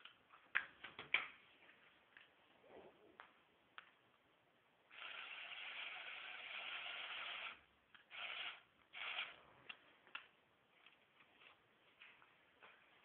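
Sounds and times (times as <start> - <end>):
small electric motor whirring: 4.9 - 9.4.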